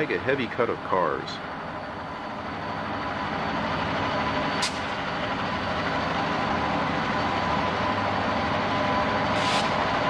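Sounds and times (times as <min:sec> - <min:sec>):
locomotive diesel engine drone: 0:00.0 - 0:10.0
short hiss: 0:09.3 - 0:09.8.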